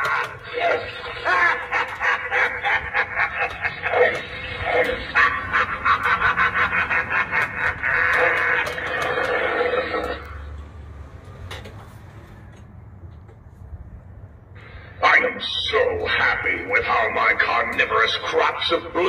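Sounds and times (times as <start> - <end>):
harsh pulsing creature voice: 0.0 - 10.4, 15.0 - 19.0.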